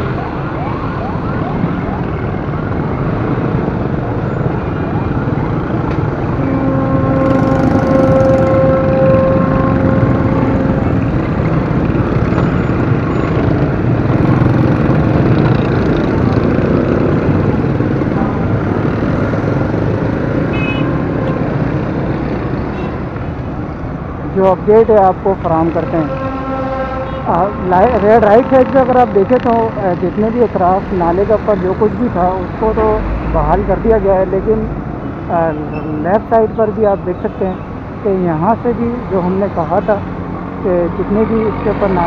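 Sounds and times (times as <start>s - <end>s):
motorcycle and car engines: 0.0s - 42.0s
long vehicle horn: 6.4s - 11.3s, 20.5s - 21.4s, 25.8s - 29.1s.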